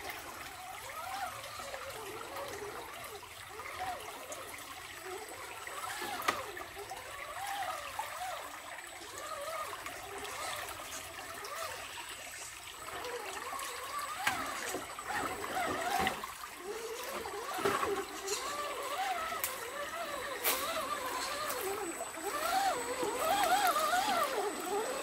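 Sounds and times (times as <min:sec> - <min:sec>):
creek trickling over rocks: 0:00.0 - 0:25.0
toy car tyres splashing water: 0:00.0 - 0:25.0.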